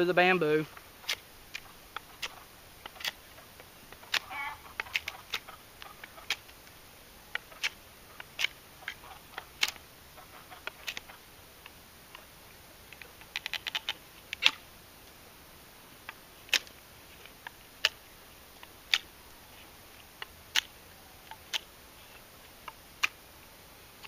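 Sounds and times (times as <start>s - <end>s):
knife cracking bamboo: 1.0s - 6.6s, 7.3s - 9.8s, 10.6s - 12.2s, 12.9s - 14.6s, 16.1s - 16.8s, 17.4s - 18.0s, 18.6s - 19.1s, 20.2s - 23.2s
small clicks: 12.9s - 14.6s.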